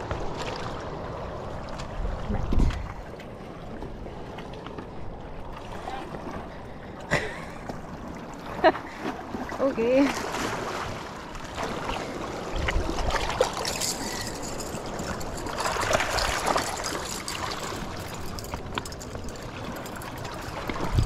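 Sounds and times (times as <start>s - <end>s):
water lapping against rocks: 0.0s - 21.0s.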